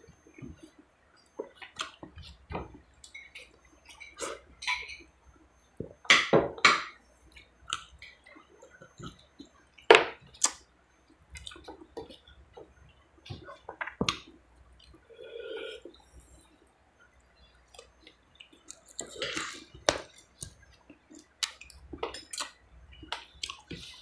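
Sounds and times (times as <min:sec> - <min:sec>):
sucking and chewing: 0:07.3 - 0:16.4, 0:17.0 - 0:24.0.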